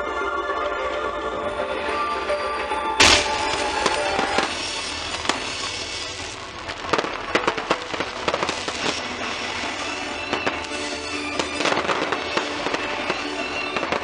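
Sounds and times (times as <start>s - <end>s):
music: 0.0s - 14.0s
crackling fireworks: 1.7s - 14.0s
loud firework bang: 3.0s - 14.0s.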